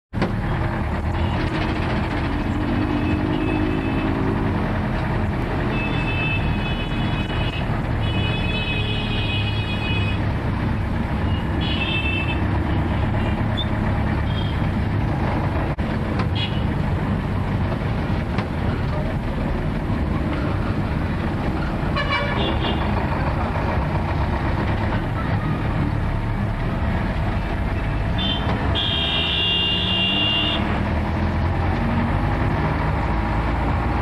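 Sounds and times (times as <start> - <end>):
street traffic engine noise: 0.1 - 34.0
vehicle horns: 2.9 - 4.2, 5.6 - 10.2, 11.3 - 13.4, 14.2 - 14.6, 21.9 - 22.9, 28.1 - 30.8.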